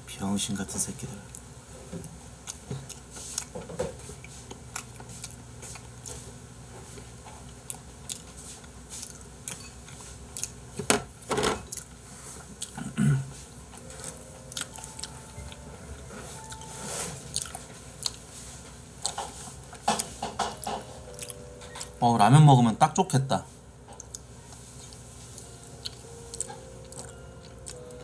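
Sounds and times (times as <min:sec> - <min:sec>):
chewing: 0:02.5 - 0:10.6, 0:11.6 - 0:12.9, 0:13.7 - 0:22.0, 0:24.0 - 0:28.0
chopsticks tapping on plate and bowl: 0:19.1 - 0:21.9.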